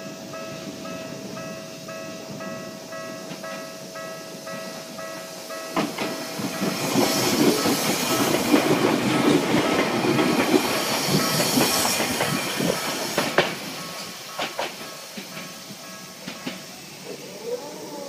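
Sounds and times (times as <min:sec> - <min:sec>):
level crossing warning bell: 0:00.0 - 0:07.7
train wheels clattering over joints: 0:04.5 - 0:17.0.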